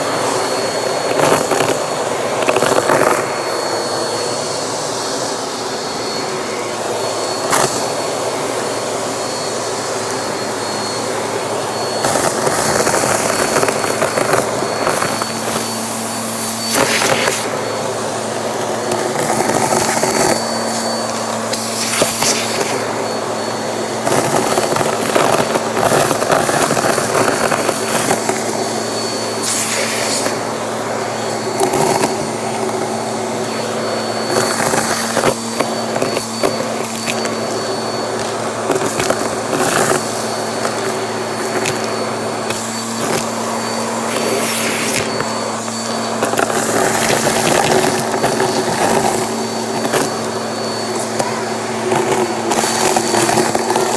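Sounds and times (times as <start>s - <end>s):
vacuum cleaner motor whining: 0.0s - 53.9s
suction hiss: 29.2s - 30.4s, 34.2s - 50.0s.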